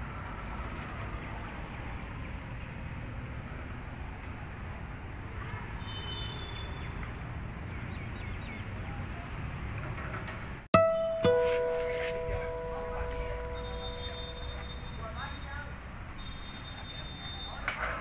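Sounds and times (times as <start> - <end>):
high chirping call: 10.8 - 17.0
faint bird chirps: 13.3 - 17.6.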